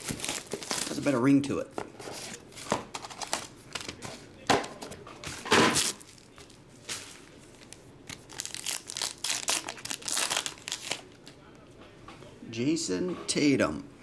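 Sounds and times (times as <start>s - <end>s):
foil pack tearing open: 0.0s - 1.2s, 8.1s - 11.0s
foil and plastic crinkling: 0.0s - 1.3s, 5.3s - 11.2s.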